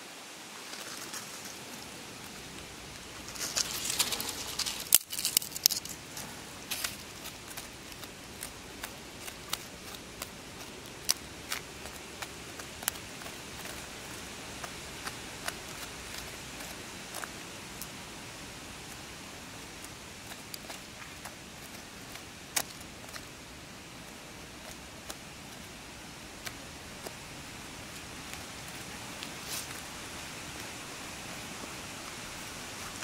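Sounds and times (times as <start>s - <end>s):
hand scraping through dry soil: 3.0s - 18.0s, 27.9s - 29.9s.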